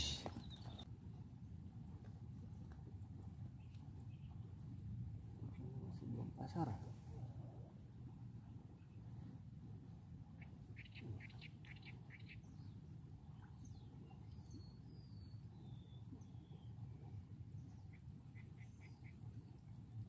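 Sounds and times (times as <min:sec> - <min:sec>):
bird chirps: 0:00.0 - 0:00.8.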